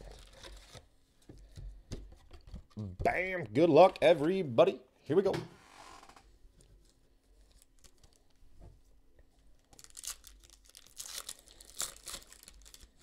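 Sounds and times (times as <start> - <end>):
foil wrapper tearing and crinkling: 7.5 - 8.2, 9.6 - 13.0.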